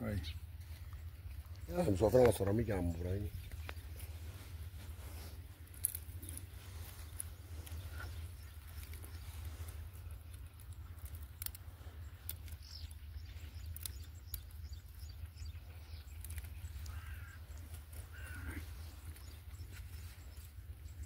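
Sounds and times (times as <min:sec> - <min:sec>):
low outdoor rumble: 0:00.0 - 0:21.0
bird chirps: 0:06.2 - 0:10.2, 0:11.0 - 0:21.0.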